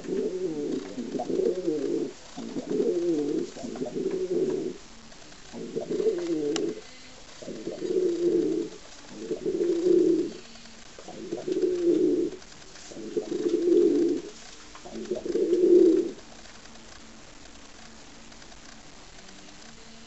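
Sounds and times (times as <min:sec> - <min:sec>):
pigeon cooing: 0:00.0 - 0:04.8, 0:05.5 - 0:06.8, 0:07.4 - 0:10.4, 0:11.0 - 0:16.2.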